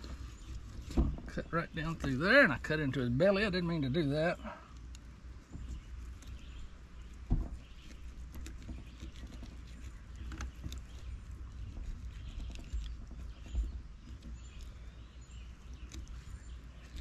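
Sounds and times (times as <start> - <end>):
low steady rumble: 0.0 - 17.0
thump: 0.9 - 1.4, 7.3 - 7.6.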